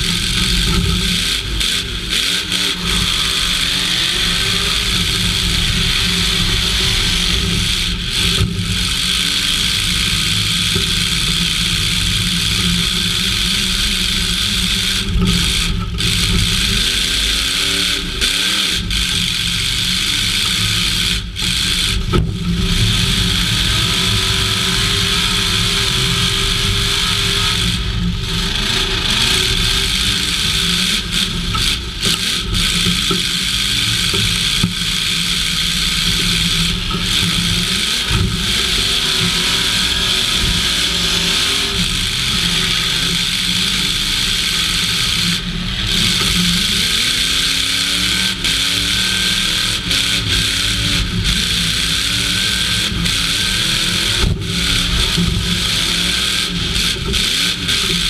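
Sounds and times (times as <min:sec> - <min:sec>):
truck engine revving: 0:00.0 - 0:58.0.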